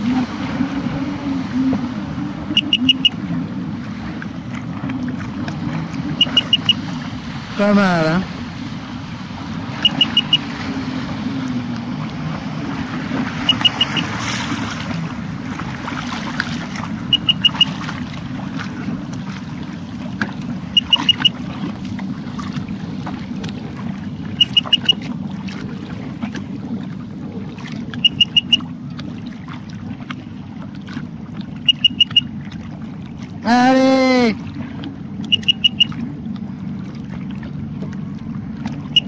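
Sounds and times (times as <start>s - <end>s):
boat engine running: 0.0s - 39.0s
water noise: 0.0s - 39.0s
quick high beeps: 2.5s - 3.2s, 6.2s - 6.8s, 9.8s - 10.5s, 13.4s - 14.1s, 17.1s - 17.8s, 20.7s - 21.4s, 24.4s - 25.0s, 28.0s - 28.7s, 31.6s - 32.3s, 35.2s - 36.0s.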